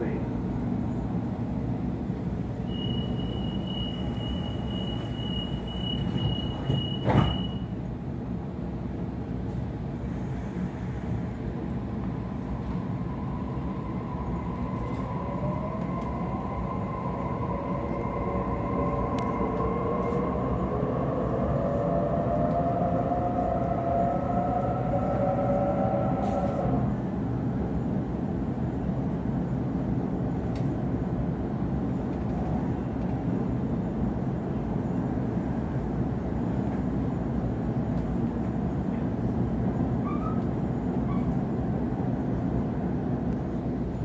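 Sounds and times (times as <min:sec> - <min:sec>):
high door-closing warning tone: 0:02.6 - 0:07.8
train doors shutting with a knock: 0:02.8 - 0:07.7.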